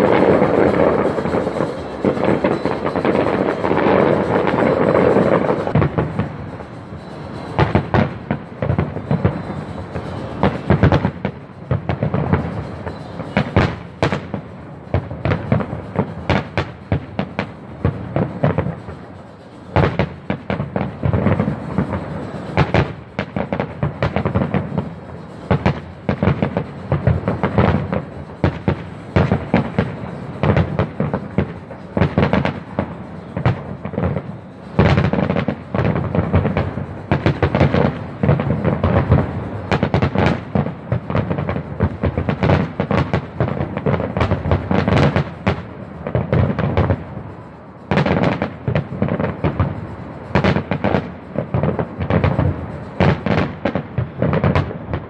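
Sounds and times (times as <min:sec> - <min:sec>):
continuous rumble: 0:00.0 - 0:55.0
firework shell bursts: 0:00.0 - 0:55.0.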